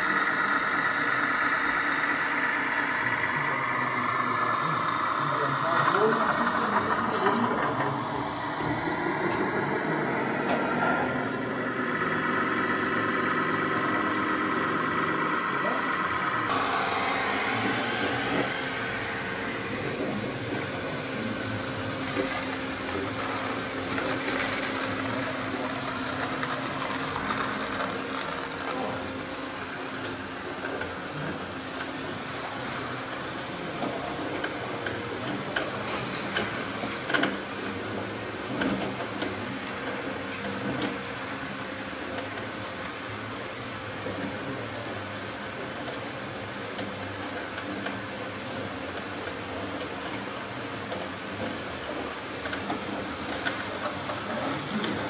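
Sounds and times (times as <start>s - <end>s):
small electric motors whirring: 0.0s - 37.9s.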